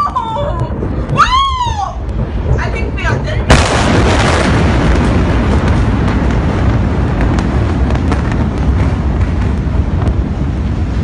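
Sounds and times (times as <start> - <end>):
explosion rumble: 0.0 - 11.0
cracks and pops of smaller blasts: 3.5 - 11.0.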